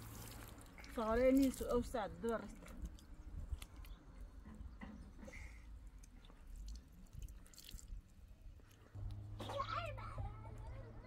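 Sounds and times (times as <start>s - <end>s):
low rumble: 8.9s - 11.0s.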